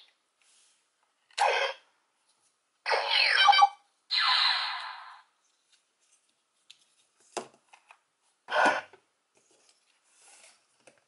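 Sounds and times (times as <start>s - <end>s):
toy electronic sound effect: 2.9s - 5.2s.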